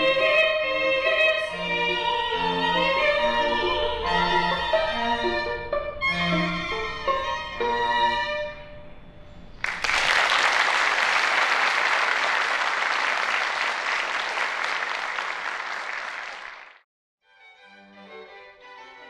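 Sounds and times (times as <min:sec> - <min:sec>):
audience applauding: 0:09.6 - 0:16.8.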